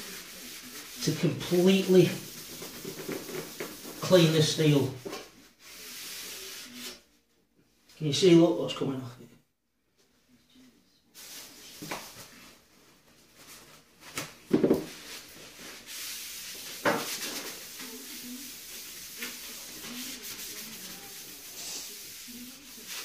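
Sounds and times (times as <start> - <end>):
cloth wiping steel sheet: 0.0 - 4.6, 5.6 - 7.0, 15.0 - 23.0.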